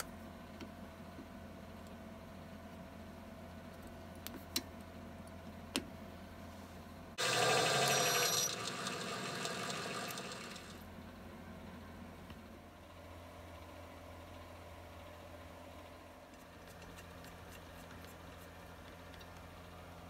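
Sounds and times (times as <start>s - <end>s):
metal lathe cutting brass: 7.2s - 10.8s.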